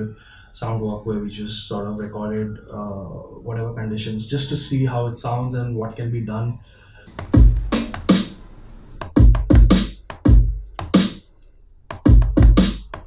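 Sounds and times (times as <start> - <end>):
electronic beat deep thuds: 7.1 - 8.4, 9.0 - 11.2, 11.9 - 13.0.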